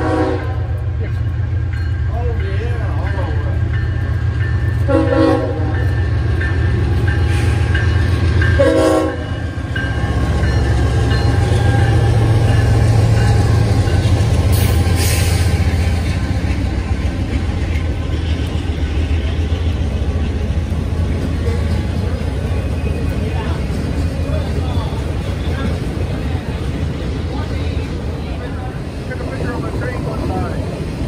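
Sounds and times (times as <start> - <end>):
train horn toot: 0.0 - 0.8, 4.8 - 5.9, 8.5 - 9.5
freight train rumbling on rails: 0.0 - 31.0.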